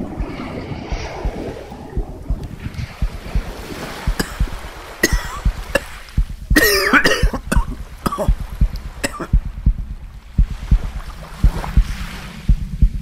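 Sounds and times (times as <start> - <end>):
low dull thuds: 0.0 - 13.0
sea sound: 0.0 - 13.0
man coughing: 4.2 - 6.0, 6.6 - 8.4, 9.0 - 9.4.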